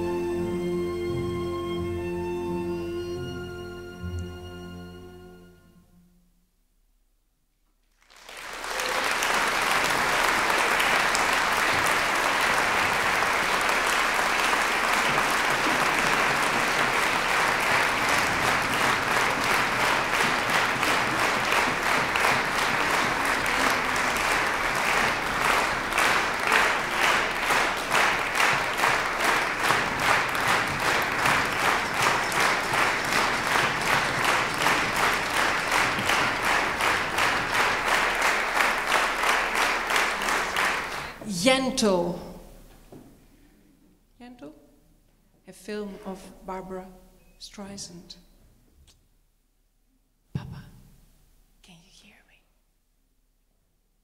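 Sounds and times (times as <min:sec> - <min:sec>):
audience applauding: 0:07.9 - 0:41.2
rhythmic clapping in unison: 0:07.9 - 0:41.3.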